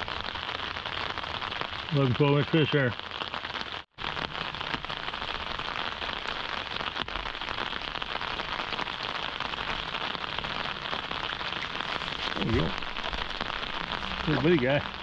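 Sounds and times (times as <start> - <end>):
steady rain pattering: 0.0 - 15.0.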